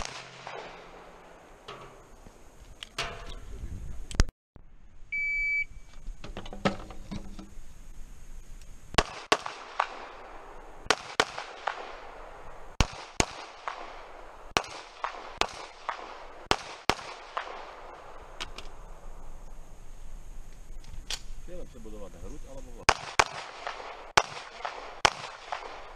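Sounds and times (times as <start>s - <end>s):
pistol shots: 0.0s - 1.6s, 9.0s - 18.2s, 22.8s - 25.9s
shot timer beep: 5.1s - 5.7s.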